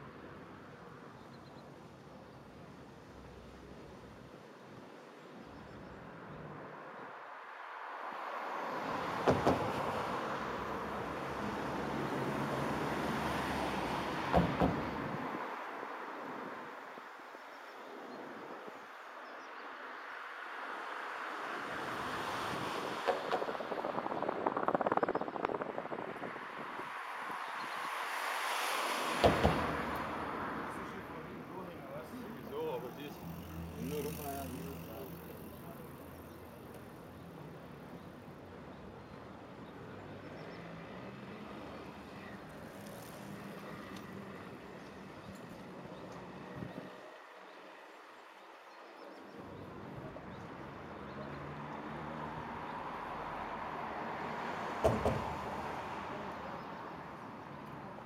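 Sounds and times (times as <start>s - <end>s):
road traffic hum: 0.0s - 58.0s
wind buffeting microphone: 22.5s - 27.6s.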